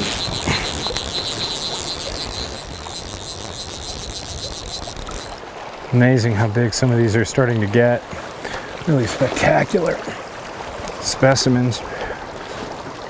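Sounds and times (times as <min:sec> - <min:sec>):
thin high tone: 0:00.0 - 0:05.4
river current rushing: 0:00.0 - 0:13.0.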